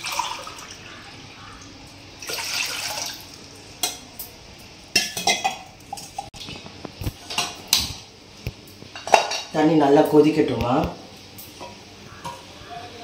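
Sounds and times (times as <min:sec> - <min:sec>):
water pouring into saucepan: 0:00.0 - 0:00.9, 0:02.1 - 0:03.6
metal vessels clinking: 0:04.9 - 0:06.4, 0:08.9 - 0:09.6.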